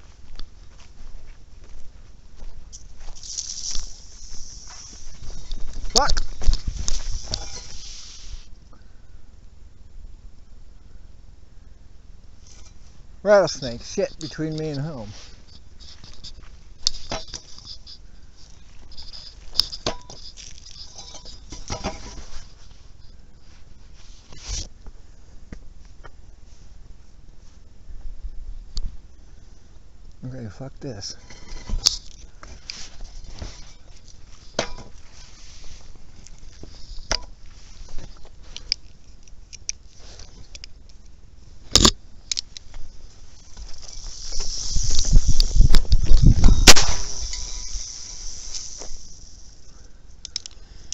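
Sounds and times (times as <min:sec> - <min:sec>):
dry grass rustling: 0:00.0 - 0:08.7, 0:12.2 - 0:29.7, 0:30.8 - 0:50.9.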